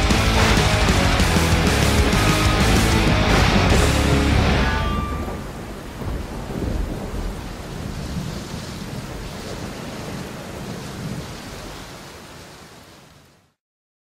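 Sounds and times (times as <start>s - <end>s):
heavy metal song: 0.0s - 5.6s
rolling thunder rumbles: 0.0s - 11.9s
rain hiss: 5.3s - 13.6s.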